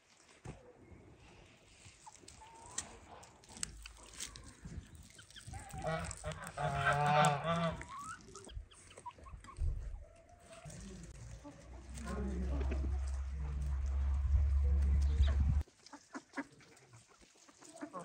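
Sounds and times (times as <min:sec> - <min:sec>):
quiet yard sounds: 0:00.0 - 0:18.0
poultry calling: 0:03.7 - 0:18.0.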